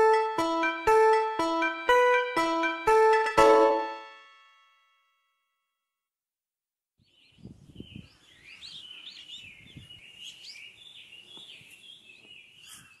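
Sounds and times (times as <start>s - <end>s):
small birds chirping and singing: 7.0s - 13.0s.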